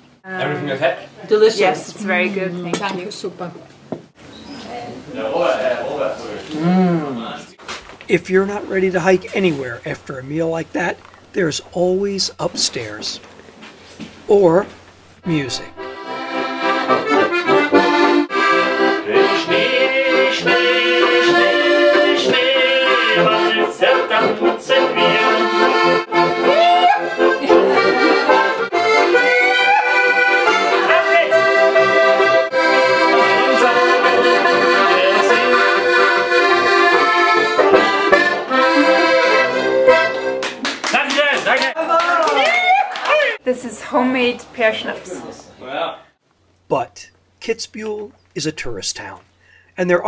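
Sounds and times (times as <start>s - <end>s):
button accordions playing folk tune: 8.1s - 13.2s, 15.2s - 40.6s.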